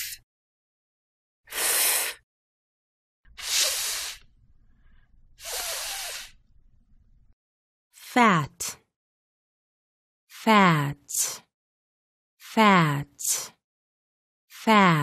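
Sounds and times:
person hissing fff sound: 1.5 - 2.2, 3.3 - 4.3, 5.4 - 6.4.

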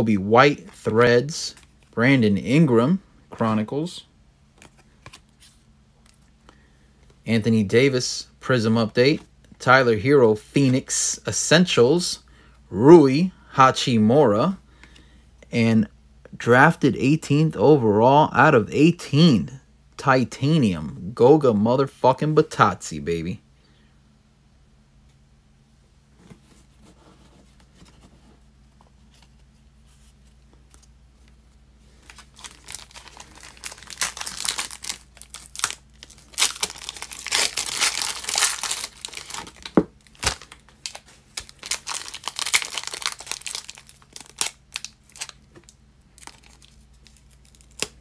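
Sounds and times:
foil wrapper tearing and crinkling: 32.0 - 48.0.

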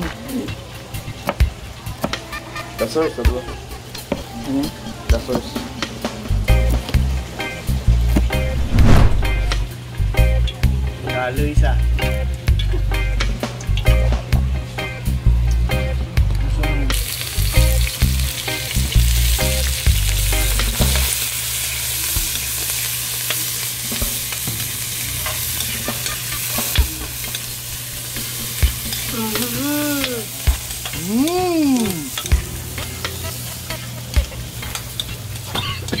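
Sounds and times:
vegetables sizzling in oil: 16.9 - 36.0.

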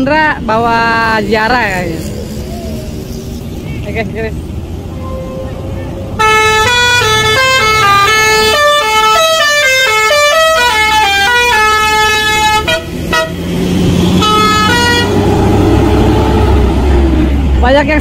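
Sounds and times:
bus engine running: 0.0 - 18.0
bus horn playing a tune: 4.9 - 13.5, 14.1 - 15.2.

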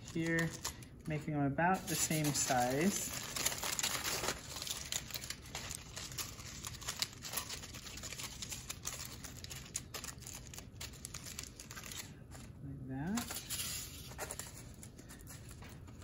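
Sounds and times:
aluminum foil crinkling: 0.0 - 16.0.

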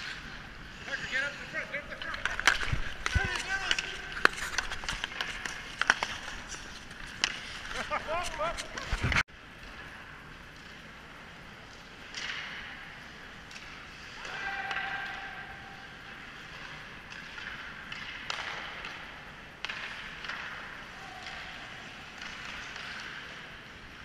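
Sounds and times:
hockey sticks and puck clacking: 0.0 - 24.0
skate blades scraping ice: 0.0 - 24.0.

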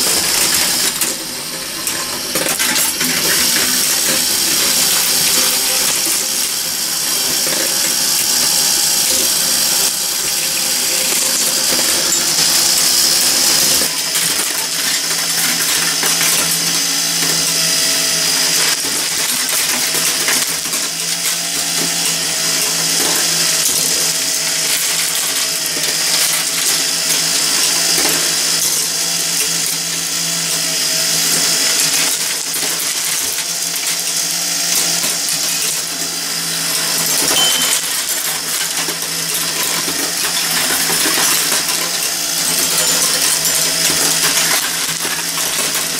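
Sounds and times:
metal machine parts clattering: 37.0 - 45.9
glass marbles clicking: 37.1 - 45.5.

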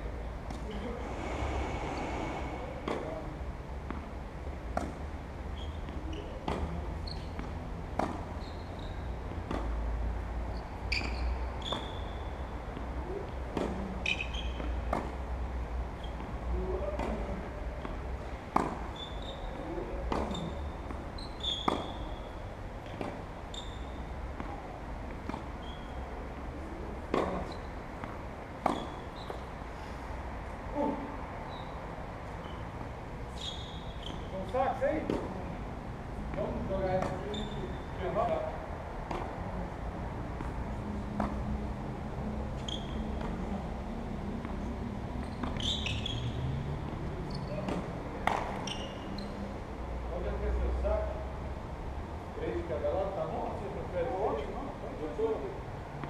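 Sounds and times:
tennis ball bouncing on court: 2.8 - 3.2, 3.8 - 5.2, 5.8 - 12.0, 12.7 - 15.4, 16.9 - 19.3, 20.0 - 22.2, 22.8 - 29.5, 34.9 - 35.4, 36.2 - 39.5, 40.3 - 43.6, 44.3 - 49.4
tennis ball struck by rackets: 7.3 - 8.3, 9.4 - 9.8, 12.7 - 15.2, 17.8 - 18.9, 20.0 - 21.0, 21.6 - 22.0, 27.0 - 29.4, 36.3 - 37.2, 39.0 - 39.4, 41.2 - 41.6, 47.6 - 48.7.

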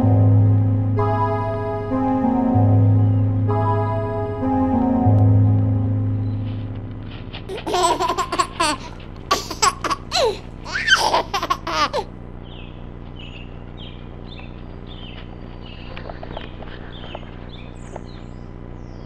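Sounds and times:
music: 0.0 - 7.5
person laughing hard: 7.5 - 12.1
faint bird chirps: 12.4 - 19.0.

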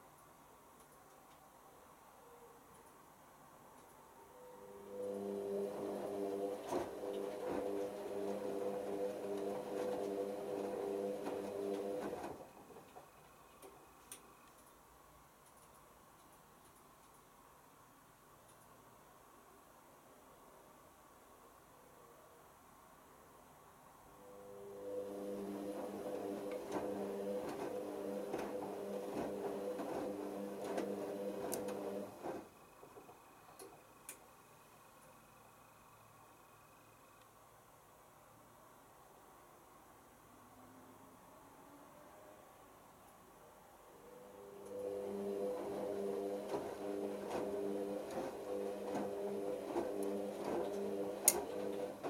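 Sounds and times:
faint clicks: 0.1 - 1.5, 3.7 - 4.0, 12.8 - 14.8, 15.4 - 17.8, 18.4 - 18.8
washing machine motor whine: 4.2 - 13.2, 24.2 - 34.0, 44.0 - 52.0
faint high tone: 24.2 - 25.1.

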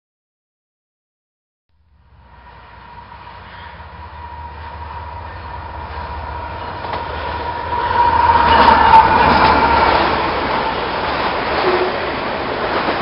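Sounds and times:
diesel locomotive engine rumble: 1.8 - 13.0
train rail noise: 1.9 - 13.0
steady high tone: 2.2 - 12.0.

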